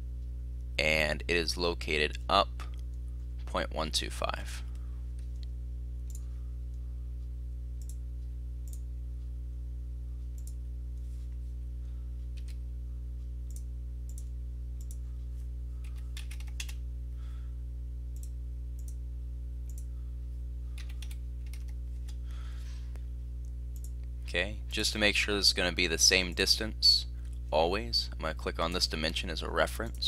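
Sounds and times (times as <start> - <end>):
low electrical hum: 0.0 - 30.0
computer mouse clicking: 10.4 - 10.6, 12.3 - 12.6, 13.5 - 15.0, 15.8 - 16.8, 20.8 - 22.2
keystrokes: 12.3 - 12.6, 15.8 - 16.8, 20.8 - 22.2.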